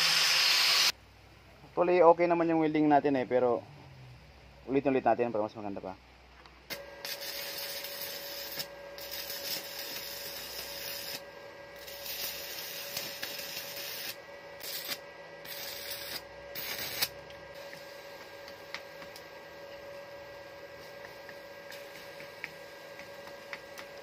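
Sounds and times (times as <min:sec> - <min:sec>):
welding arc crackling and sizzling: 0:00.0 - 0:01.0, 0:06.7 - 0:24.0.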